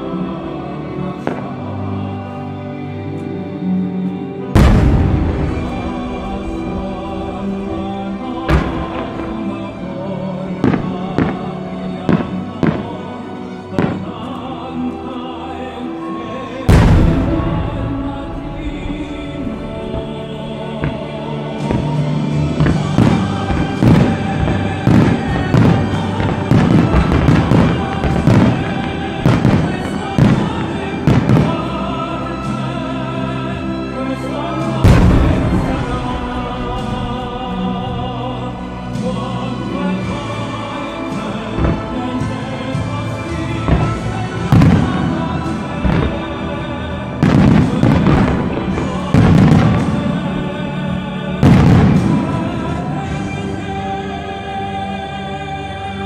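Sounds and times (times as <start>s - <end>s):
loud music: 0.0s - 56.0s
firework booms: 4.6s - 9.8s, 16.7s - 31.7s, 34.8s - 40.1s, 41.2s - 50.6s, 51.4s - 52.8s.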